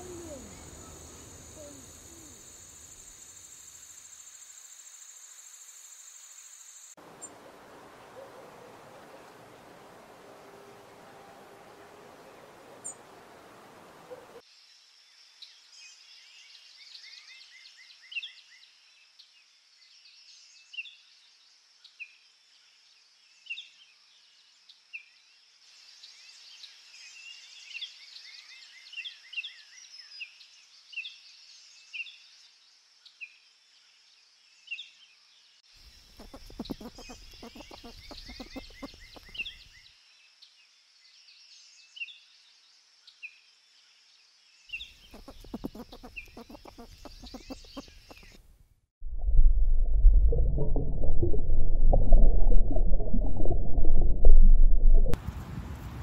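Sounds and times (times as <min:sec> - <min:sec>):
small birds chirping: 0:00.0 - 0:03.3, 0:35.8 - 0:39.8, 0:44.6 - 0:48.4.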